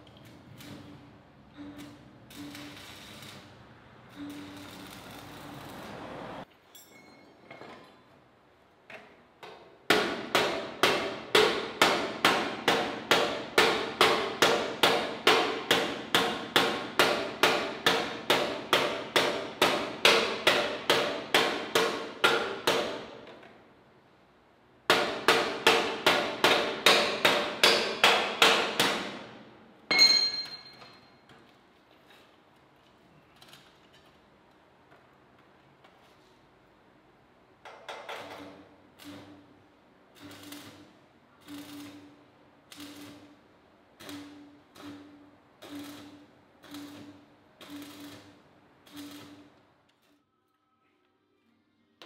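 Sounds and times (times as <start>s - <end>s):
hammer striking steel: 9.9s - 23.2s, 24.9s - 29.3s, 29.9s - 31.1s.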